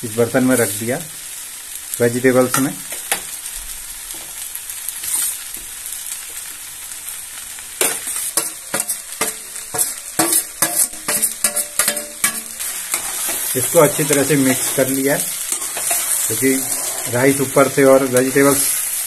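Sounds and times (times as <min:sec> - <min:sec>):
rice sizzling in oil: 0:00.0 - 0:19.0
spatula scraping a pan: 0:04.9 - 0:05.6, 0:07.8 - 0:19.0.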